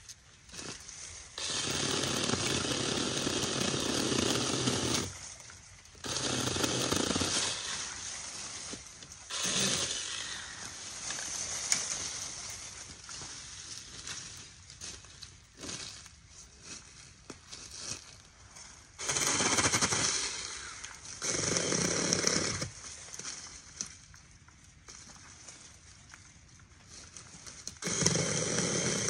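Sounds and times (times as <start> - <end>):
mini chainsaw cutting brush: 0.0 - 18.2, 18.8 - 24.1, 26.9 - 29.0.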